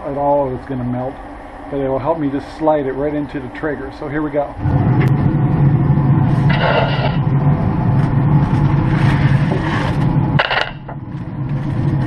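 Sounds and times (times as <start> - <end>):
steady low drone: 0.0 - 12.0
sharp clatter: 6.5 - 7.3, 9.0 - 11.0.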